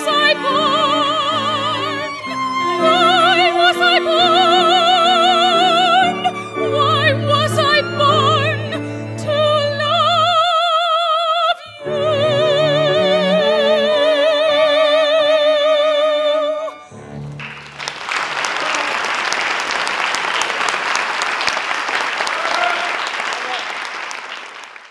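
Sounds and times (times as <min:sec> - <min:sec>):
soprano singing with vibrato: 0:00.0 - 0:16.9
piano and strings: 0:00.0 - 0:18.4
audience applauding: 0:17.2 - 0:24.9.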